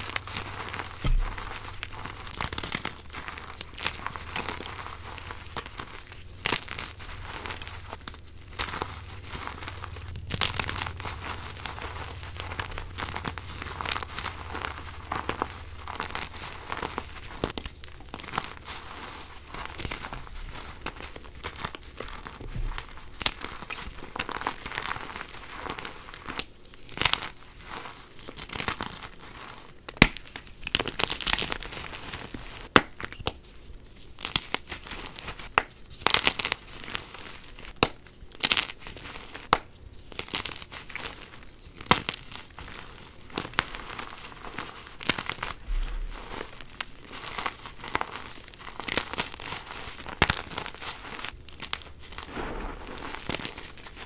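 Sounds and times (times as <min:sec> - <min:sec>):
chalk crunching and crackling: 0:00.0 - 0:54.0
chalk chunks snapping: 0:34.2 - 0:42.7.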